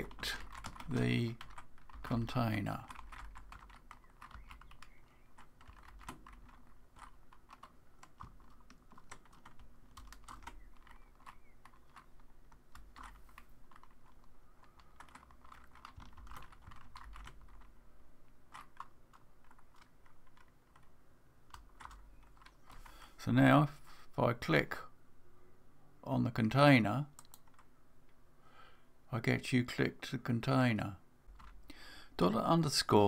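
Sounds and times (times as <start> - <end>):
computer keyboard keystrokes: 0.1 - 2.1, 2.8 - 17.7, 21.5 - 22.9, 27.2 - 27.7.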